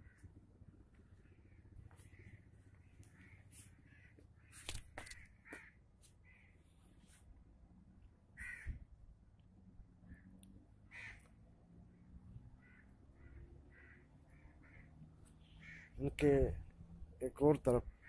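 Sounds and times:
crows cawing: 0:00.0 - 0:06.6, 0:08.4 - 0:08.8, 0:10.1 - 0:11.4, 0:12.0 - 0:16.0.

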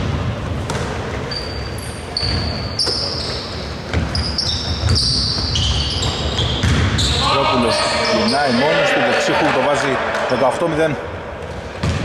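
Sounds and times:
basketball bouncing: 0:00.0 - 0:01.1, 0:03.9 - 0:07.1, 0:11.8 - 0:12.0
sneakers squeaking on floor: 0:00.6 - 0:08.7.

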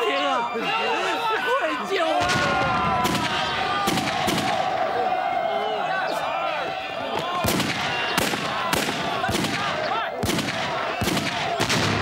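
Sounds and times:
men shouting: 0:00.0 - 0:11.7
gunshots: 0:02.2 - 0:04.7, 0:07.2 - 0:12.0.

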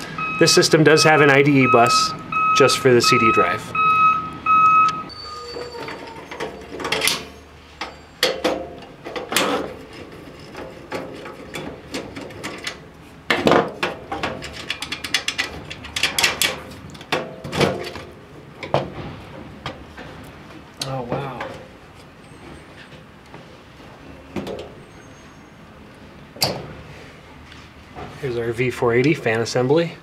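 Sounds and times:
metal parts rattling: 0:14.0 - 0:16.7.

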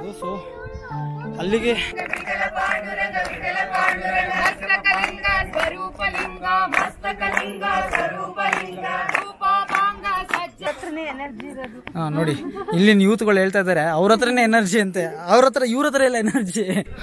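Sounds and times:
group of voices singing: 0:01.1 - 0:11.1
rhythmic hand clapping: 0:02.0 - 0:12.0.

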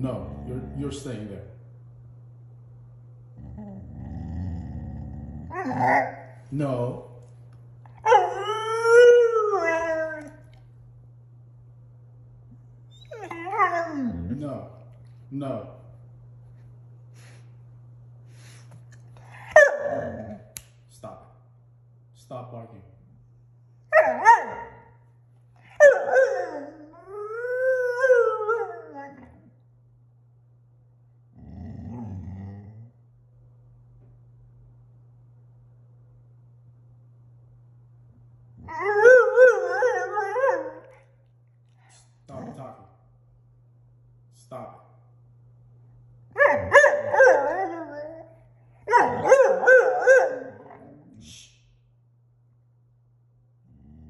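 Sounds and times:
puppy howling: 0:03.4 - 0:06.4, 0:08.0 - 0:10.6, 0:12.9 - 0:14.4, 0:19.5 - 0:20.5, 0:23.9 - 0:24.9, 0:25.6 - 0:29.6, 0:38.6 - 0:41.1, 0:46.3 - 0:51.2
puppy yowling bark: 0:05.5 - 0:06.3, 0:08.0 - 0:10.3, 0:19.5 - 0:20.4, 0:23.9 - 0:24.9, 0:25.7 - 0:27.0, 0:38.7 - 0:41.0, 0:46.4 - 0:48.3, 0:48.9 - 0:51.0.

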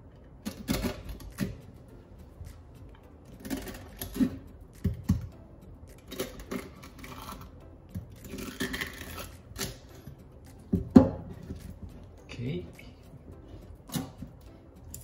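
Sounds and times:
knife scraping: 0:03.3 - 0:04.9, 0:06.0 - 0:10.2, 0:13.4 - 0:15.0
knife cutting fish fin: 0:06.2 - 0:10.1, 0:13.8 - 0:14.3.

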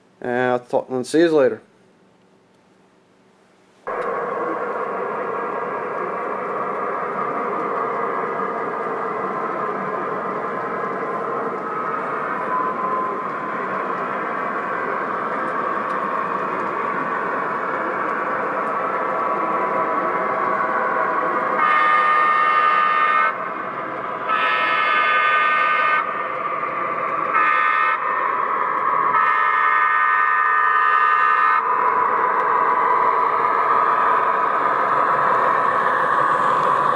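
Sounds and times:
model train rolling: 0:03.9 - 0:36.9
train horn: 0:21.6 - 0:23.4, 0:24.2 - 0:26.1, 0:27.3 - 0:28.0, 0:29.1 - 0:31.7.

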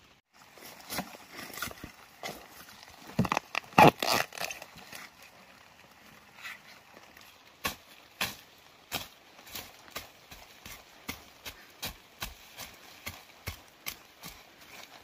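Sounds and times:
bamboo shoot snapping: 0:03.2 - 0:04.9.

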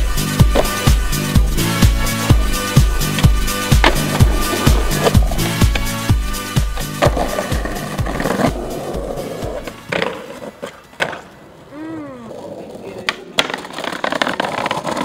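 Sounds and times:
music with bass beat: 0:00.0 - 0:09.7
skateboard wheels rolling on pavement: 0:00.0 - 0:15.0
skateboard knocks: 0:00.4 - 0:00.8, 0:02.3 - 0:06.0, 0:06.7 - 0:08.6, 0:12.9 - 0:15.0.

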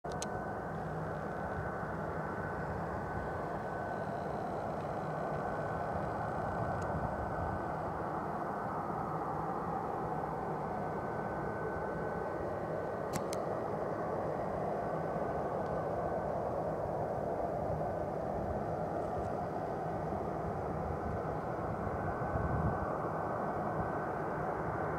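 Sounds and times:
high engine whine: 0:00.0 - 0:24.9
distant jet engines rumbling: 0:00.3 - 0:24.9
sharp clicks: 0:13.1 - 0:13.4.

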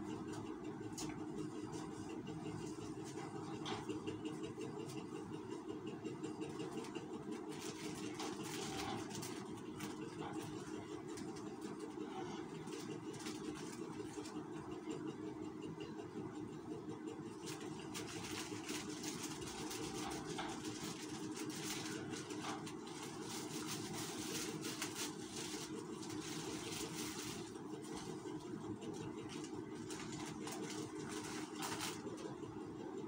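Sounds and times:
steady machine hum: 0:00.0 - 0:33.0
plastic strips crinkling: 0:06.4 - 0:14.4, 0:17.3 - 0:32.4.

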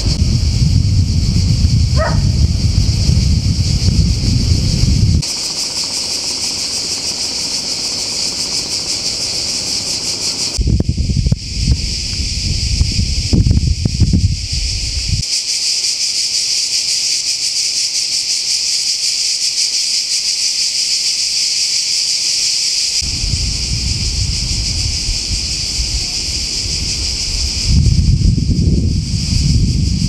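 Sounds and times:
wind rumbling on microphone: 0:00.0 - 0:05.3, 0:10.4 - 0:15.3, 0:23.0 - 0:30.0
cicadas shrilling: 0:00.0 - 0:30.0.

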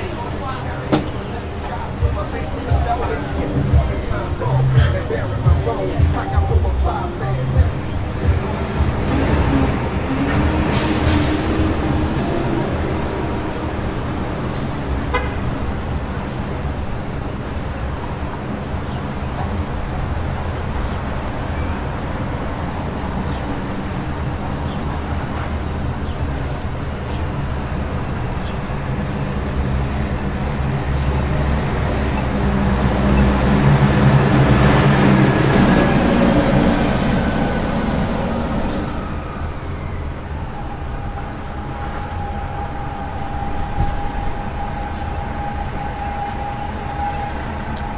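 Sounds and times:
heavy vehicle passing: 0:00.0 - 0:18.3, 0:22.0 - 0:39.6
street traffic rumble: 0:00.0 - 0:47.9.

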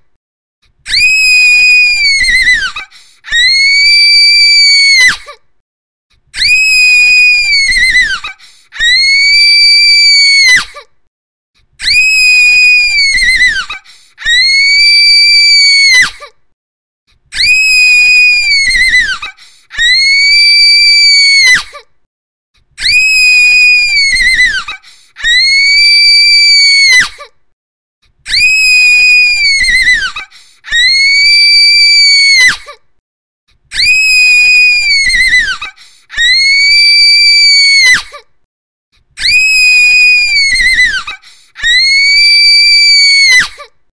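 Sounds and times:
woman screaming: 0:00.9 - 0:05.2, 0:06.4 - 0:10.7, 0:11.8 - 0:16.2, 0:17.4 - 0:21.7, 0:22.8 - 0:27.2, 0:28.3 - 0:32.7, 0:33.7 - 0:38.1, 0:39.2 - 0:43.6.

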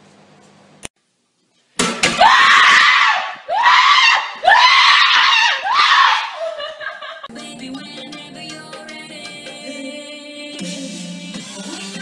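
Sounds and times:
person screaming: 0:02.2 - 0:06.6.

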